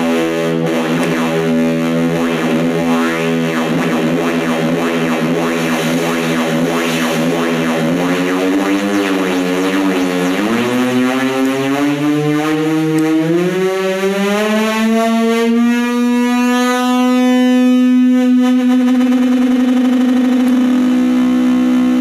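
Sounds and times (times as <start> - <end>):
synthesizer droning note with sweeps: 0.0 - 22.0.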